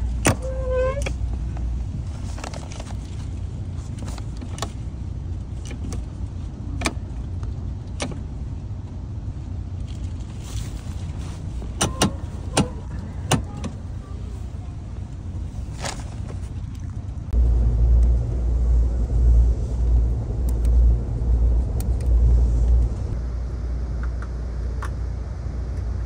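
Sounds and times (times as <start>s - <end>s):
seat mechanism clicks and clunks: 0.0s - 3.2s, 3.9s - 4.9s, 5.5s - 8.3s, 11.5s - 13.9s
low rumble of moving train: 0.0s - 26.0s.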